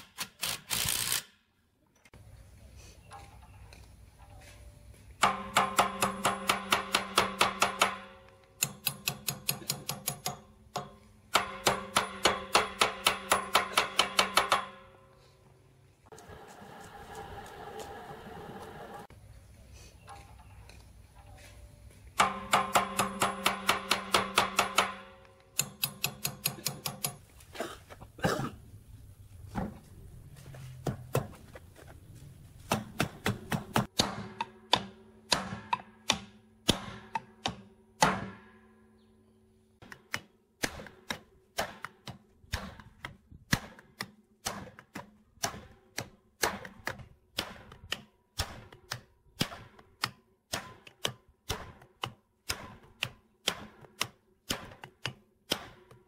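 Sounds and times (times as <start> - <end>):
hammer tapping on steel: 5.2 - 15.0, 22.2 - 27.2.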